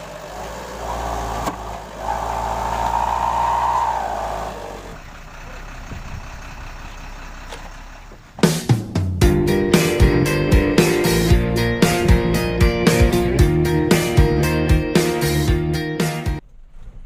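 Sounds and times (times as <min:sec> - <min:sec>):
diesel truck engine under load: 0:00.0 - 0:15.4
strummed guitar music: 0:09.2 - 0:16.4.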